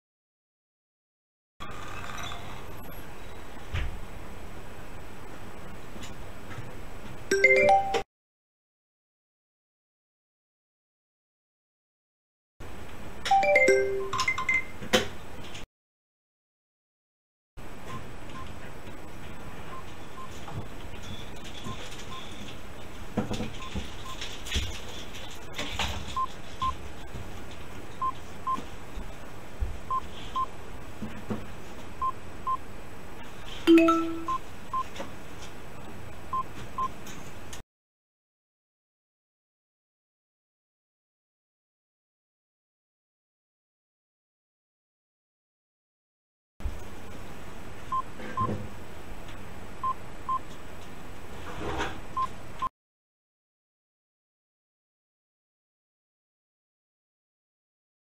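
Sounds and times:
low alert chime: 0:13.4 - 0:14.8, 0:33.7 - 0:34.4
high double beeps: 0:33.7 - 0:34.4.

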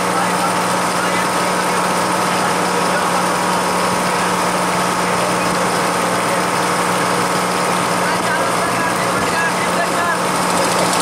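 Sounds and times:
motorboat engine droning: 0:00.0 - 0:11.0.

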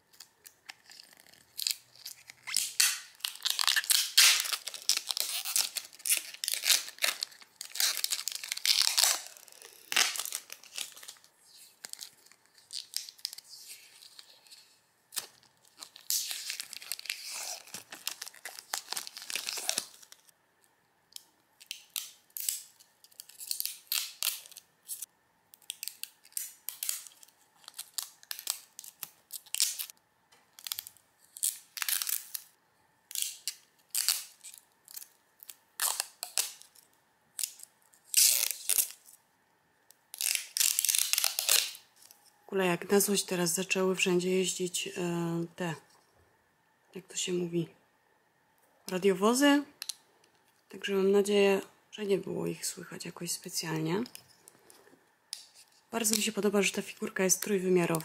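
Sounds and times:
plastic film crinkling: 0:00.0 - 0:20.3, 0:21.6 - 0:29.9, 0:30.5 - 0:39.2, 0:40.2 - 0:42.2, 0:54.0 - 0:58.0.

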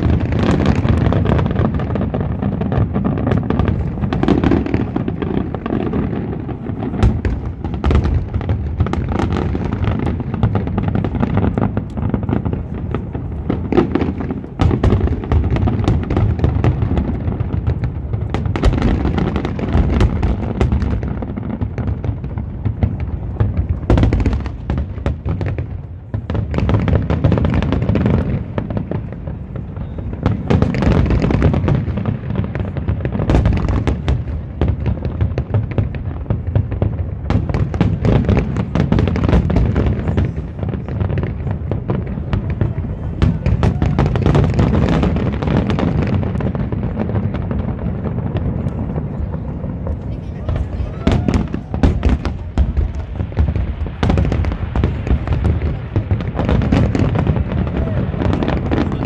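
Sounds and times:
fireworks booms rumbling: 0:00.0 - 0:59.0
fireworks sharp cracks: 0:00.0 - 0:59.0.

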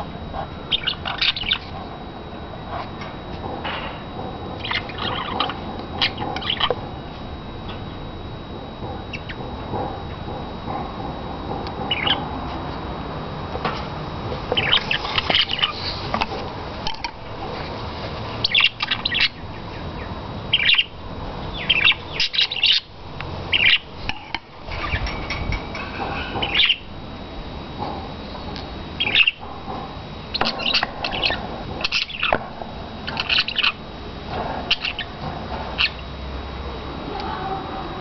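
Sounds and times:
budgerigars chirping and squawking: 0:00.7 - 0:01.7, 0:04.6 - 0:06.8, 0:09.1 - 0:09.4, 0:11.9 - 0:12.2, 0:14.6 - 0:16.1, 0:18.4 - 0:20.9, 0:21.5 - 0:22.9, 0:23.5 - 0:23.8, 0:24.7 - 0:26.9, 0:29.0 - 0:29.4, 0:30.4 - 0:32.4, 0:33.1 - 0:33.8, 0:34.7 - 0:35.2, 0:35.8 - 0:36.0.

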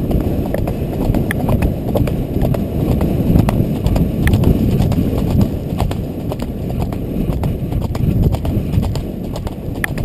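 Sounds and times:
hooves clip-clopping on gravel: 0:00.0 - 0:10.0
low rumble: 0:00.0 - 0:10.0.

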